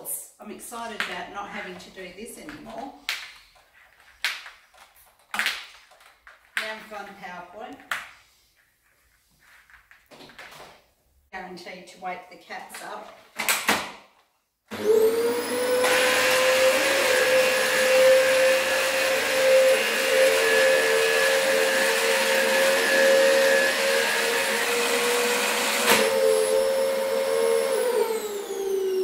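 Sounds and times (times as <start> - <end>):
vacuum cleaner motor whining: 14.7 - 29.0.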